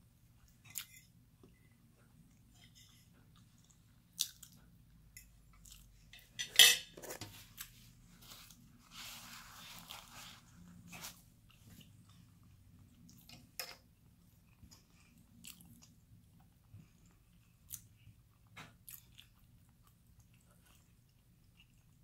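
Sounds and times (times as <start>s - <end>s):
chewing food: 0.3s - 6.1s, 10.6s - 22.0s.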